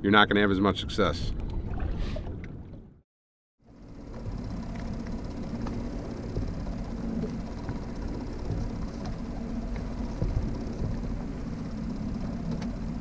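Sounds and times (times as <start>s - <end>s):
boat motor running: 3.6s - 13.0s
faint light ticks: 12.2s - 12.8s.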